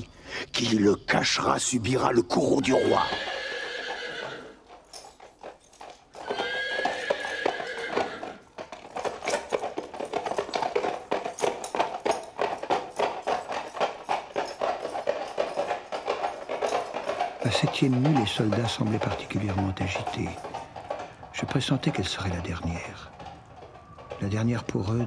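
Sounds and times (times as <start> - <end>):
hooves clattering on cobblestones: 1.9 - 25.0
horse whinnying: 2.5 - 4.8, 5.8 - 11.6.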